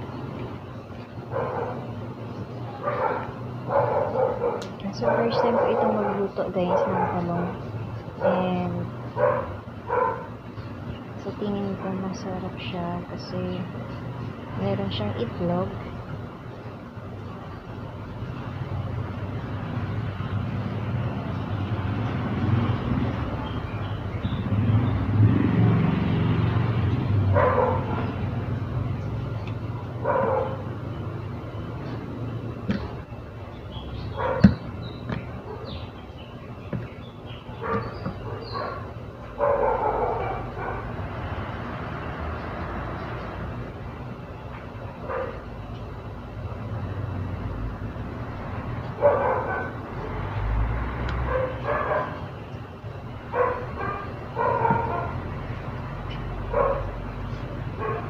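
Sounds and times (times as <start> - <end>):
vehicle engine rumble: 0.0 - 58.0
dog barking: 1.3 - 1.9, 2.7 - 7.6, 8.2 - 8.4, 9.2 - 10.4, 27.3 - 28.2, 30.0 - 30.7, 34.1 - 34.6, 37.6 - 41.0, 45.0 - 45.4, 49.0 - 50.2, 51.2 - 52.3, 53.3 - 55.3, 56.5 - 57.0, 57.8 - 58.0.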